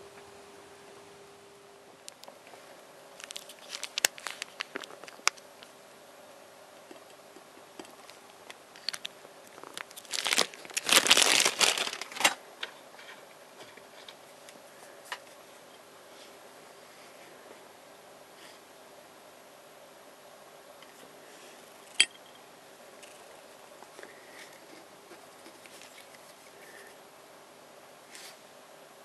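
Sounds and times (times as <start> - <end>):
glue tube crinkling: 3.2 - 5.7, 8.0 - 12.2.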